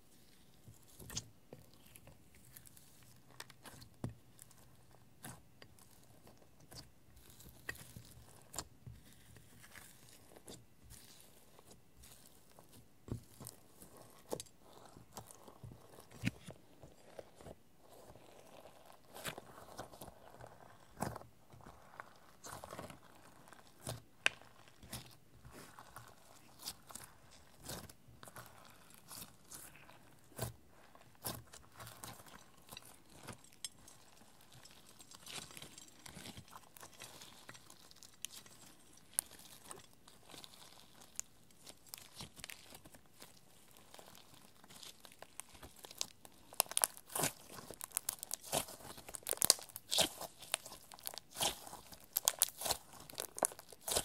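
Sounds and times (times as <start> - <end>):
slime sticky pops and crackles: 43.9 - 54.0.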